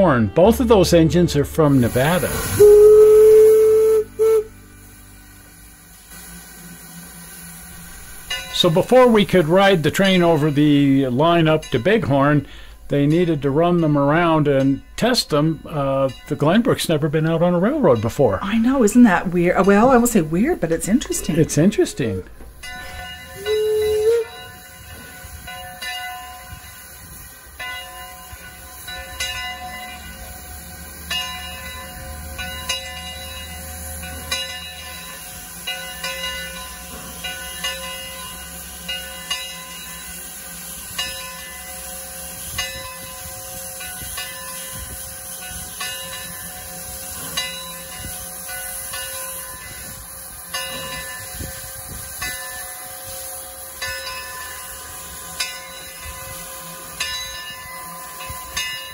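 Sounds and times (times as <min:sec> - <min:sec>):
steam hissing: 0:01.5 - 0:58.9
locomotive bell ringing: 0:07.1 - 0:58.9.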